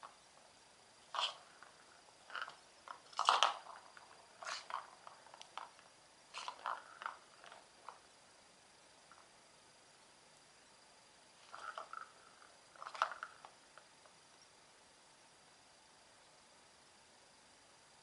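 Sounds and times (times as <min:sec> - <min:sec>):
cat scratching plastic toy: 0:01.1 - 0:08.1, 0:11.4 - 0:13.6.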